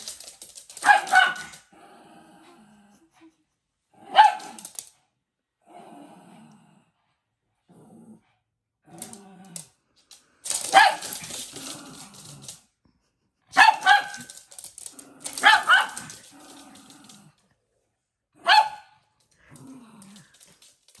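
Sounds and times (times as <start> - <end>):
small dogs barking: 0.8 - 1.6, 4.0 - 4.7, 10.6 - 11.3, 13.5 - 14.4, 15.3 - 16.2, 18.4 - 19.0
dog growling: 1.7 - 3.2, 5.6 - 7.0, 7.6 - 9.8, 11.1 - 12.7, 14.7 - 17.5, 19.4 - 21.0.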